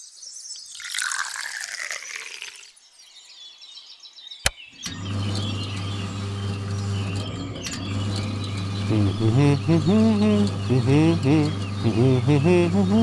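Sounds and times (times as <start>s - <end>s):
small electric motor humming: 4.8s - 13.0s.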